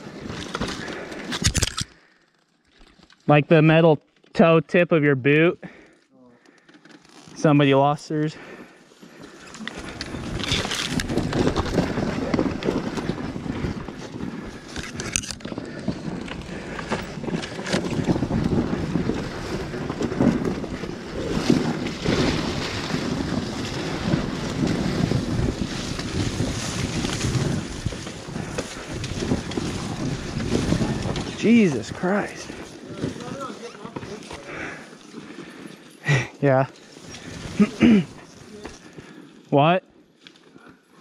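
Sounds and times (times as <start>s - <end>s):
bike knocking over ground: 9.8s - 31.5s
wind buffeting microphone: 9.9s - 33.5s
dirt bike engine running: 15.5s - 33.5s.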